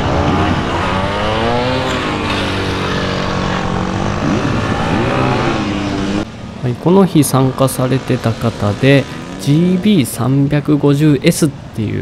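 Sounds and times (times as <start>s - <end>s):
motorcycle engine revving: 0.0s - 6.3s, 7.3s - 10.2s.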